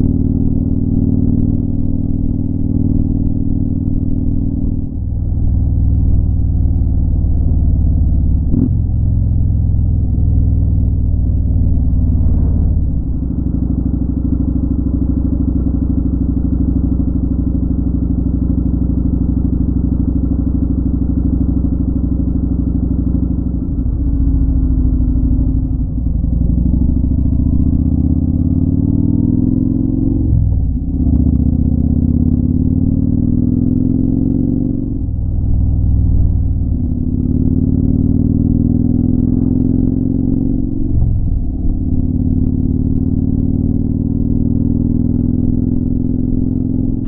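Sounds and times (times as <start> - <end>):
motorcycle engine: 0.0 - 47.0.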